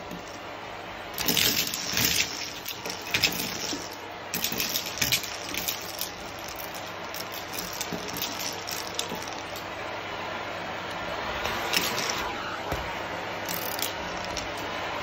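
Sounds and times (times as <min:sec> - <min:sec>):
vacuum cleaner suction: 0:00.0 - 0:15.0
debris rattling up vacuum tube: 0:01.1 - 0:09.7, 0:13.4 - 0:14.7.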